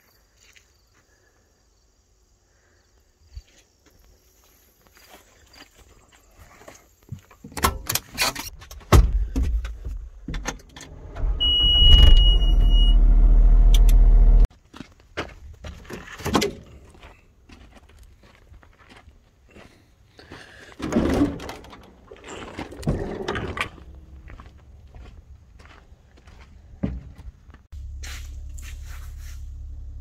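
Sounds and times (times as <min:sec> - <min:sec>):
diesel engine drone: 0:10.7 - 0:14.5, 0:27.7 - 0:30.0
high electronic beep: 0:11.4 - 0:13.0.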